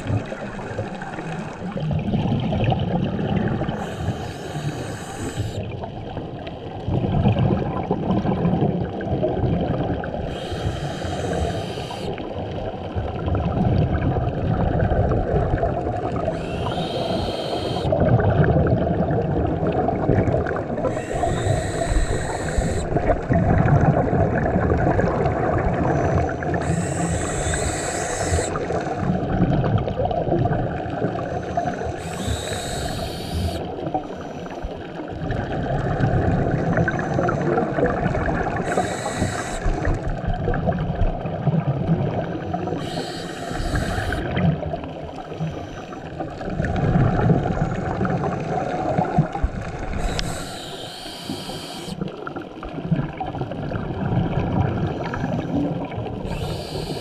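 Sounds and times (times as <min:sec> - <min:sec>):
underwater rumble and bubbles: 0:00.0 - 0:57.0
diver regulator breathing hiss: 0:03.6 - 0:05.7, 0:10.2 - 0:12.2, 0:16.2 - 0:18.0, 0:20.8 - 0:23.2, 0:25.9 - 0:29.1, 0:31.1 - 0:34.7, 0:36.6 - 0:40.2, 0:42.7 - 0:44.4, 0:49.7 - 0:52.1, 0:56.2 - 0:57.0.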